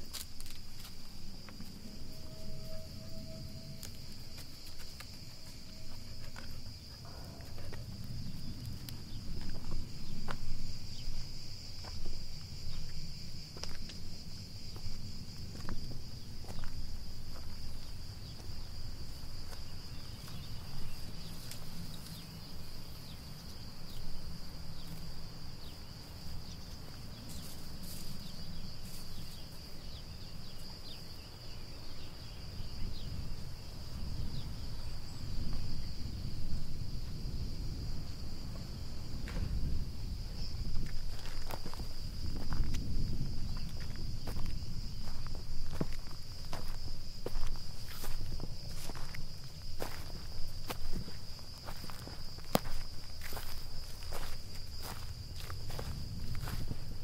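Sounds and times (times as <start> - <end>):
insects trilling: 0.0 - 57.0
low rumble: 33.9 - 48.6.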